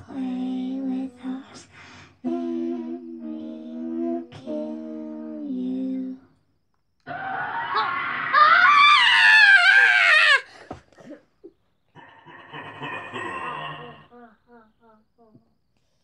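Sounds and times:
wavering scream: 7.0s - 10.6s.

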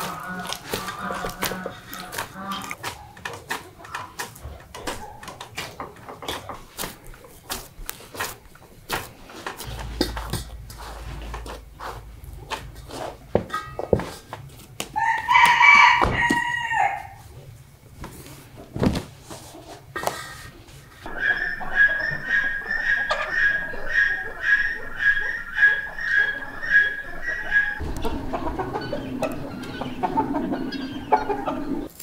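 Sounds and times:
low thump: 9.7s - 11.5s
rooster crowing: 15.0s - 17.2s, 21.1s - 31.9s.

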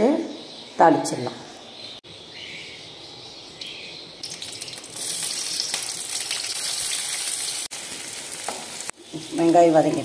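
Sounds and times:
onions sizzling in hot oil: 4.2s - 10.0s.

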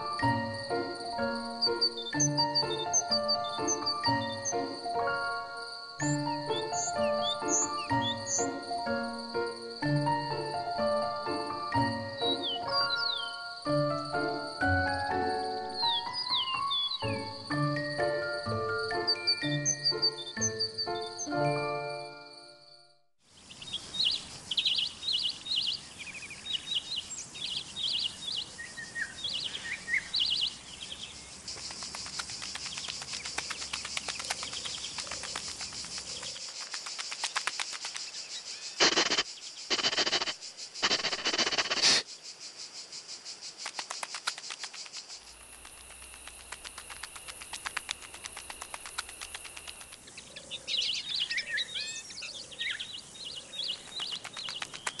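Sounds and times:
birds chirping: 0.0s - 22.6s, 23.3s - 55.0s
shrill insect drone: 38.7s - 42.0s, 44.4s - 50.0s.

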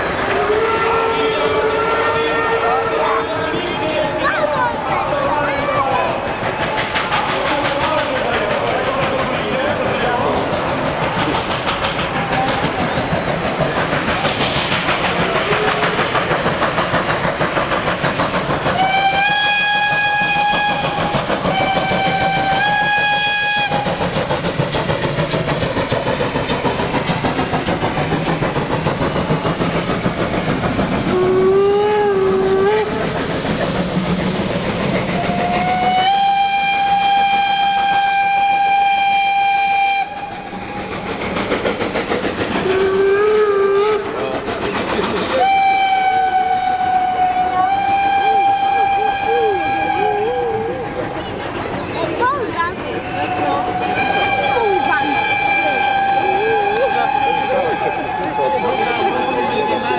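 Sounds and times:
steam locomotive running: 0.0s - 59.9s
steam whistle blasts: 0.3s - 3.1s, 18.8s - 24.0s, 31.1s - 33.0s, 35.2s - 40.5s, 42.6s - 44.1s, 45.3s - 50.7s, 53.1s - 59.9s
lower wavering whistle: 45.3s - 50.7s.

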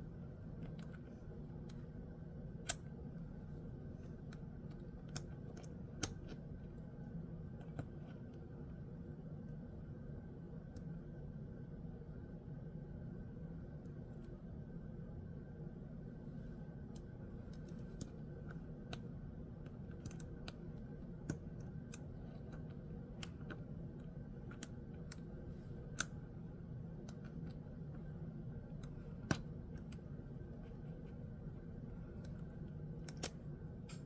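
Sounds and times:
magnetic metal pieces clicking: 32.1s - 34.0s.

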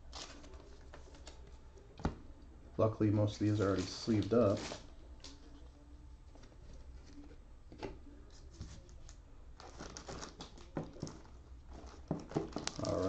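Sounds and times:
plastic sleeves crinkling: 3.4s - 5.7s, 8.4s - 13.0s.

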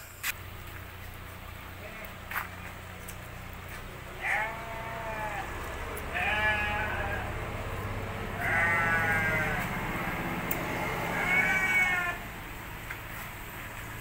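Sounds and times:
sheep bleating: 4.0s - 7.5s, 8.2s - 12.3s.

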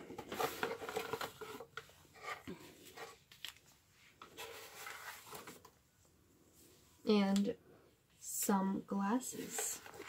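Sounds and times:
cardboard and plastic bags rustling: 0.0s - 3.5s.

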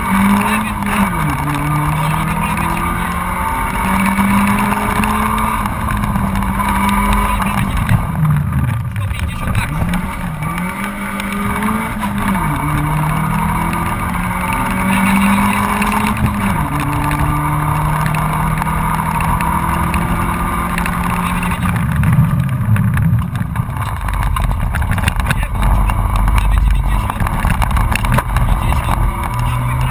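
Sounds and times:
car engine revving high: 0.0s - 29.9s.

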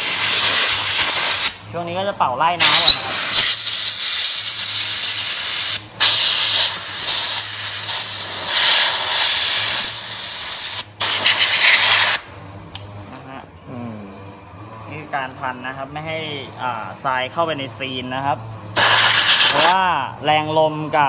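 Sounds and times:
compressed air gun hissing: 0.0s - 1.6s, 2.6s - 12.3s, 18.8s - 19.8s.

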